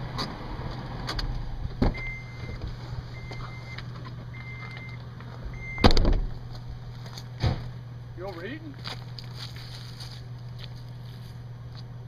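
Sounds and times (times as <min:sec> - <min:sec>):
vehicle engine idling: 0:00.0 - 0:12.0
dashboard warning chime beeping: 0:01.9 - 0:05.9
thump: 0:05.8 - 0:06.3, 0:07.4 - 0:07.7.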